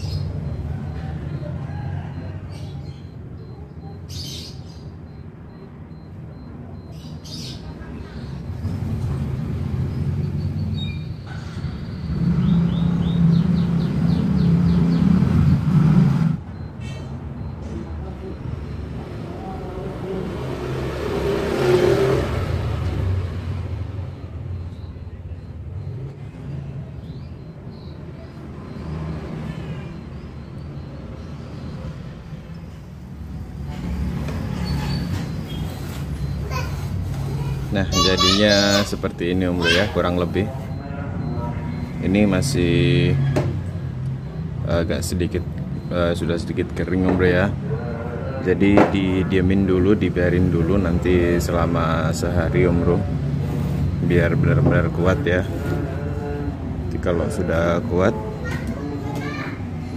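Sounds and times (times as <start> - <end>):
bird chirping: 0.0 - 1.5, 2.2 - 15.7, 24.5 - 29.2, 34.5 - 40.4
motor vehicle rumble: 4.8 - 59.9.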